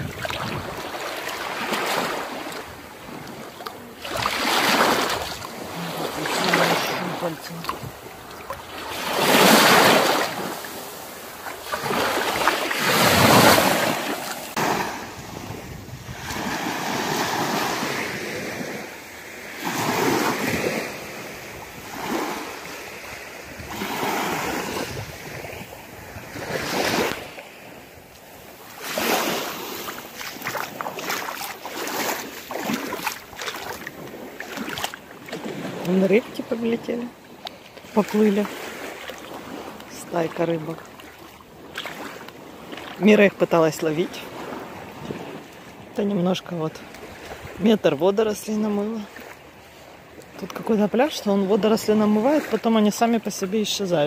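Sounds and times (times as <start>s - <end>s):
wind buffeting microphone: 0.0s - 0.9s, 15.2s - 16.5s, 23.5s - 27.2s
small waves washing onto sand: 0.0s - 54.0s.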